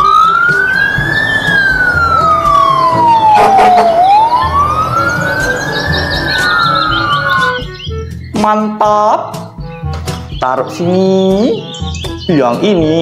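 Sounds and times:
fire truck siren wailing: 0.0s - 7.9s.

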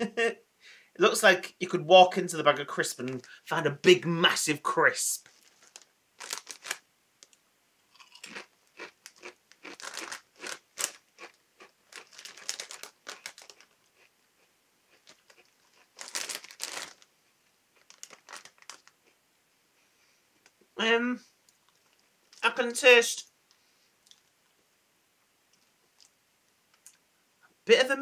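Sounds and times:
crisp packet crinkling: 5.2s - 7.4s, 8.0s - 14.1s, 14.9s - 17.1s, 17.7s - 19.0s
chewing crunchy crisps: 5.2s - 17.1s, 17.8s - 19.2s.

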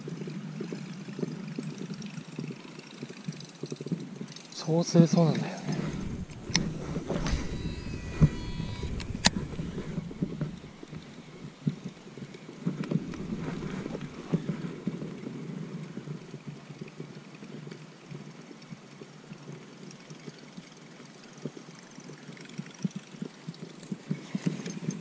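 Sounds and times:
clothing and gear rustling: 5.4s - 11.8s, 12.6s - 15.2s
brief high squeak: 5.6s - 11.5s
sharp clicks: 5.7s - 11.5s.

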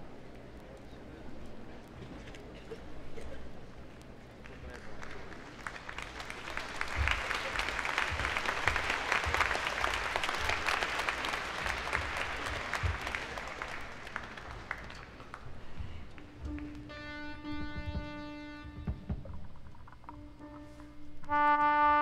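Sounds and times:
audience applauding: 4.4s - 16.8s.

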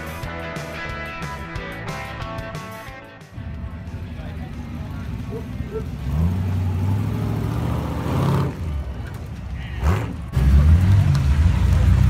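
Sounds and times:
car engine running at low revs: 3.4s - 12.0s
engine revving: 3.4s - 12.0s.

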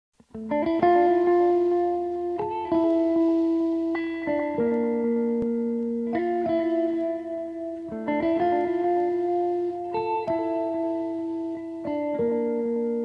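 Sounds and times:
slow ringing guitar notes: 0.3s - 13.0s.

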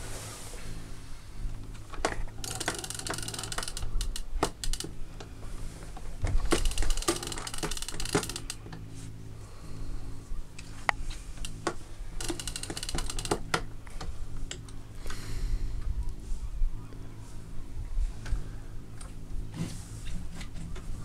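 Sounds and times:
low steady hum: 0.0s - 21.0s
fishing reel clicking: 2.4s - 5.0s, 6.5s - 8.7s, 12.2s - 13.5s.

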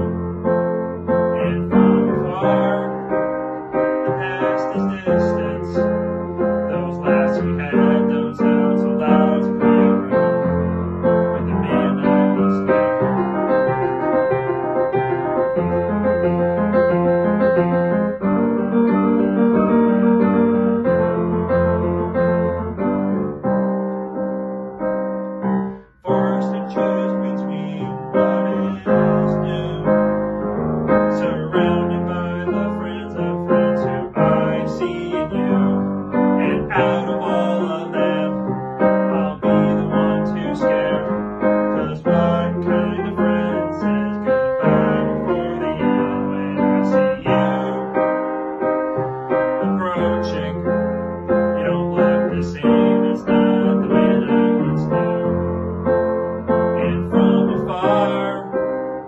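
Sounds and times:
piano chords: 0.0s - 59.0s.

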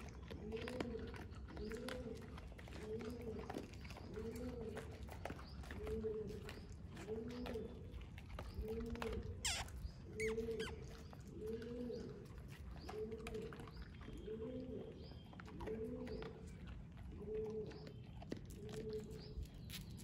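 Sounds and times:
birds chirping: 0.0s - 20.0s
bird hooting coo: 0.4s - 4.9s, 8.6s - 16.4s, 17.1s - 18.0s.

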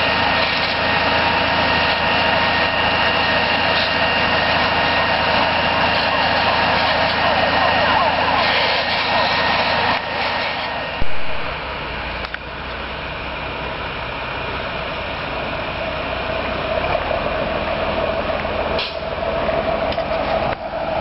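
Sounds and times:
droning whine: 0.0s - 21.0s
fire engines rumbling: 0.0s - 21.0s
sharp thump: 11.0s - 11.5s.

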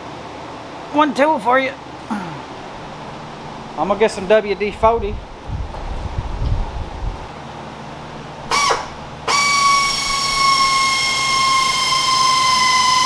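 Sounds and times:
air drill whining: 8.5s - 13.0s.

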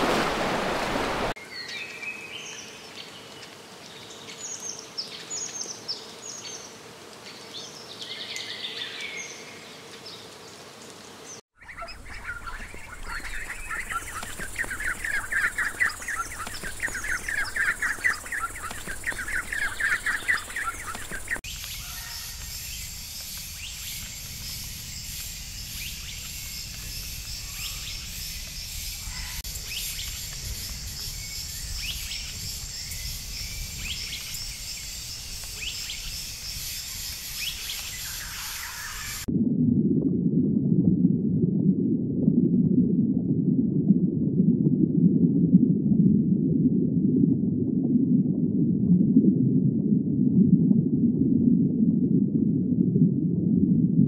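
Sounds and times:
rapid repeated chirping calls: 11.6s - 22.4s
bird chirps: 11.6s - 22.9s
high insect drone: 14.0s - 39.2s.

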